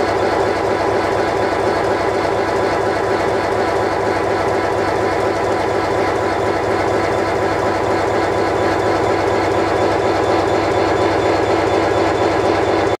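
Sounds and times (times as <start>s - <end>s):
diesel locomotive engine drone: 0.0s - 13.0s.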